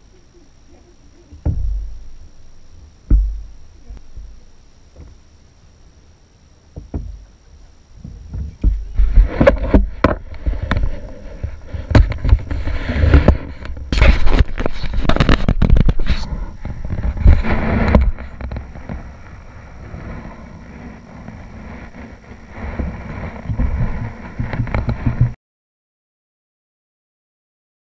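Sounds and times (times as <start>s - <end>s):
low rumble: 0.0s - 25.4s
paddle knocking on kayak hulls: 1.4s - 2.0s, 3.1s - 3.5s, 6.8s - 7.3s.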